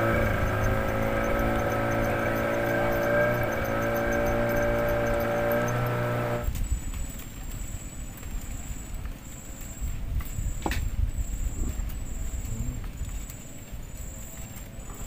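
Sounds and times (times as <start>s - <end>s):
engine droning: 0.0s - 6.5s.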